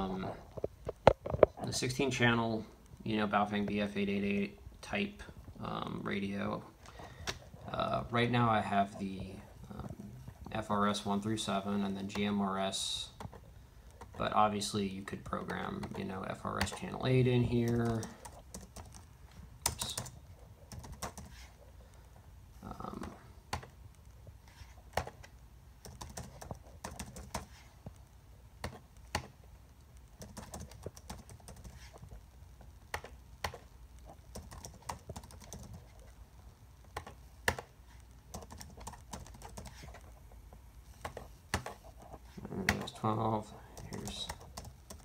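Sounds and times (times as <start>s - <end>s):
computer keyboard typing: 15.2s - 21.4s, 25.0s - 27.5s, 30.2s - 31.9s, 34.3s - 35.9s, 38.3s - 40.0s, 43.8s - 45.0s.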